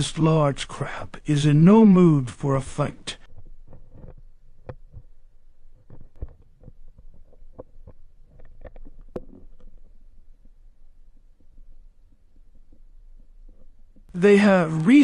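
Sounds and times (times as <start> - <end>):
soft clicks and knocks: 3.2 - 14.1.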